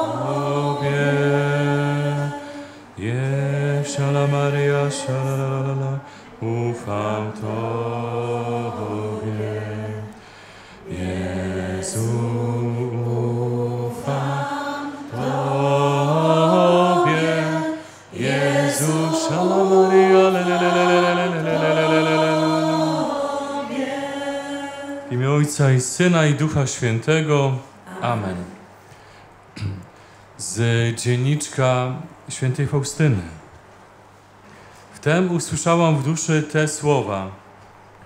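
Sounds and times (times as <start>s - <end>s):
voices singing a chant-like prayer: 0.0s - 26.6s.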